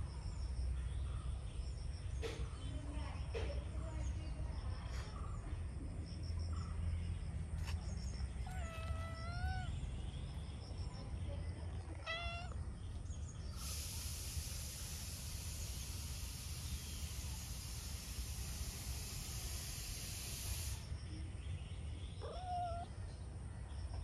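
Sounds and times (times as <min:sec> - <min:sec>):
cat meowing: 0:08.4 - 0:09.8, 0:12.0 - 0:12.6, 0:22.2 - 0:22.9
steady high hiss: 0:13.5 - 0:21.0.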